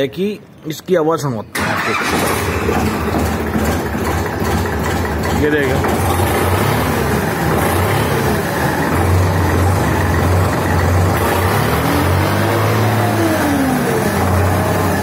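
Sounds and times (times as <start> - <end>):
tractor diesel engine idling: 1.5 - 11.6.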